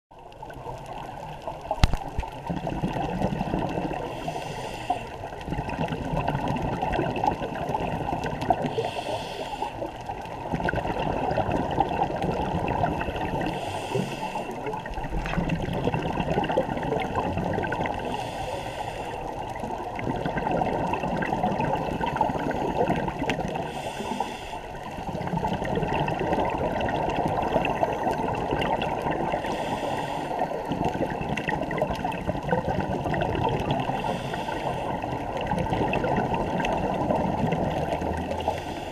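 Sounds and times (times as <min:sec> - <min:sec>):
muffled rush of water: 0:00.1 - 0:38.9
exhaled bubbles rushing: 0:00.2 - 0:04.4, 0:05.0 - 0:09.0, 0:09.9 - 0:18.3, 0:19.3 - 0:23.9, 0:24.7 - 0:29.7, 0:30.3 - 0:38.9
regulator hissing inhale: 0:04.0 - 0:05.4, 0:08.7 - 0:10.0, 0:13.4 - 0:14.7, 0:18.0 - 0:19.6, 0:23.5 - 0:25.0, 0:29.4 - 0:30.8, 0:33.8 - 0:35.2, 0:38.2 - 0:38.9.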